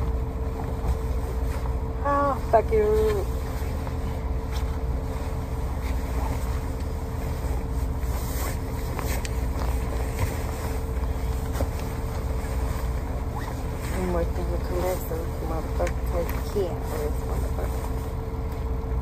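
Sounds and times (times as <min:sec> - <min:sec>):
soft rustles and taps: 0:00.0 - 0:01.9, 0:02.8 - 0:18.8
faint steady hum: 0:00.0 - 0:19.0
truck engine rumble: 0:00.0 - 0:19.0.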